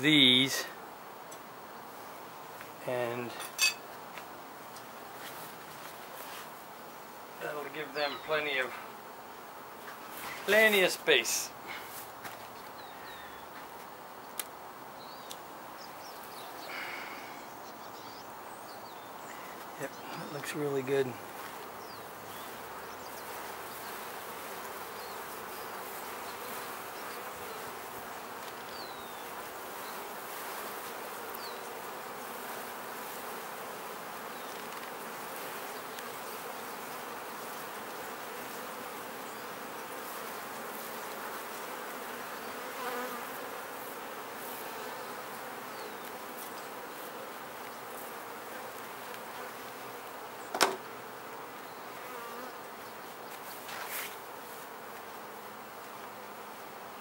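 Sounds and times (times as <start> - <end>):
honey bees buzzing: 0.0 - 57.0
sharp knock: 50.5 - 50.8.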